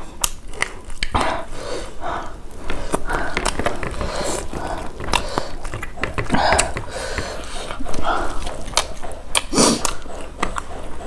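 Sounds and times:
wet chewing and lip smacking: 0.0s - 11.0s
sharp mouth clicks: 2.6s - 11.0s.

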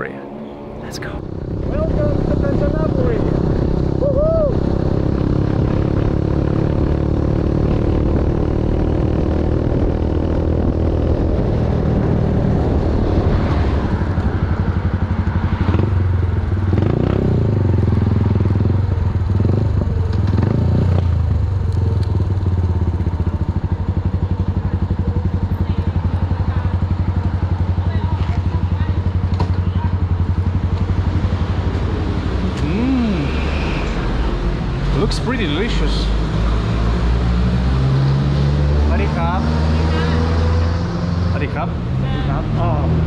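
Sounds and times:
motorcycle engine running: 0.0s - 33.2s.

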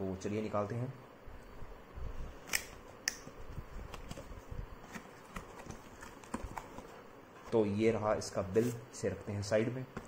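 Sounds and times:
cardboard flaps rustling: 3.7s - 7.7s.

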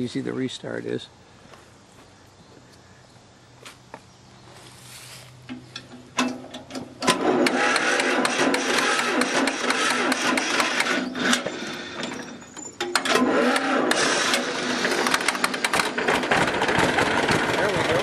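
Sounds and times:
tractor engine clattering: 5.4s - 18.0s.

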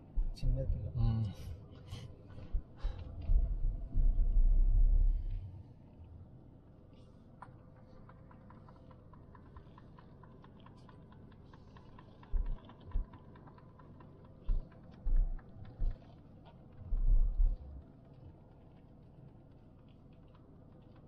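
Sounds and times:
dull low thumps: 0.1s - 0.8s, 2.5s - 5.3s, 12.4s - 13.1s, 14.5s - 16.0s, 16.8s - 17.8s.

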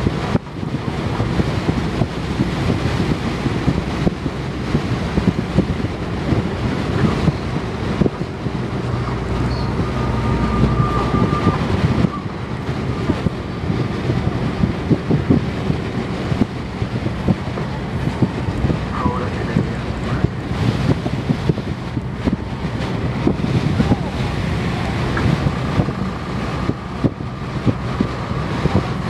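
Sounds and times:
vehicle engine and road noise: 0.0s - 29.0s.

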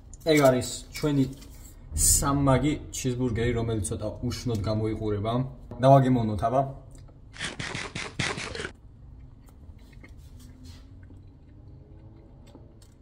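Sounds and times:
quiet wet chewing: 9.1s - 13.0s.

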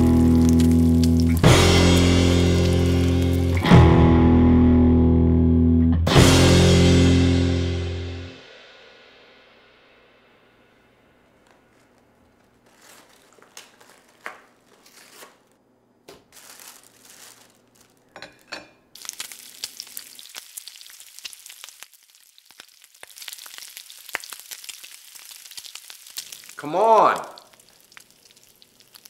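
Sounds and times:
fat sizzling in a frying pan: 0.0s - 3.7s, 16.3s - 29.0s
rustling: 11.2s - 18.5s.

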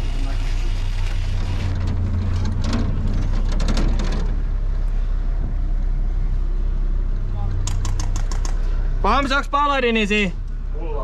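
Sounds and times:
vehicle engine droning: 0.0s - 11.0s
sharp clicks and rattles: 1.0s - 4.4s, 7.6s - 8.7s.

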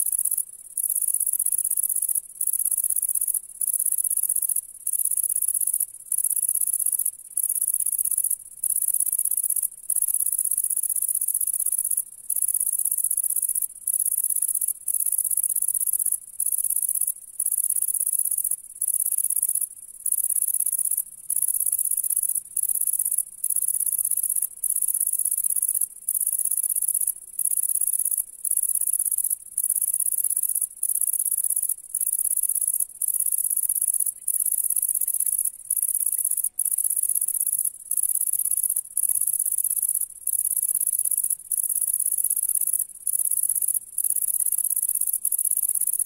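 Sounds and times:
bush cricket buzzing trill: 0.0s - 46.0s.

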